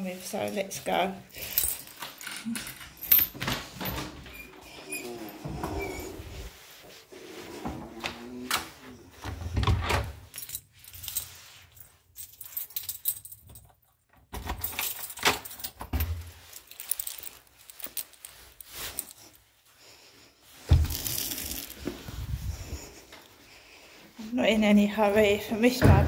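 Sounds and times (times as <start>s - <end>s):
keys jangling: 1.4s - 6.4s, 10.0s - 19.4s, 20.8s - 21.9s.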